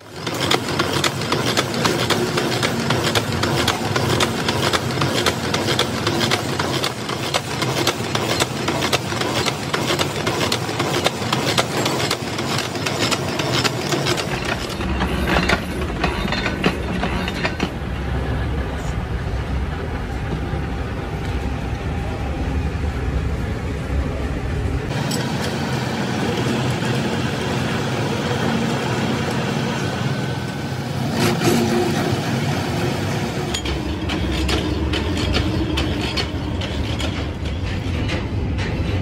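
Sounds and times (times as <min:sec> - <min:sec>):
machine tool humming: 0:24.9 - 0:38.2.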